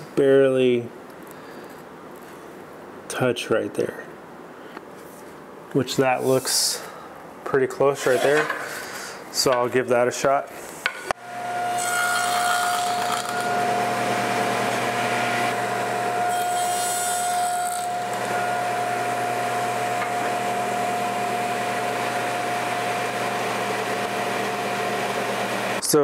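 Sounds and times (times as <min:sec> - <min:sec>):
saw blade cutting wood: 0:08.0 - 0:08.6, 0:11.6 - 0:20.5
table saw whining: 0:08.0 - 0:08.7, 0:10.8 - 0:25.8.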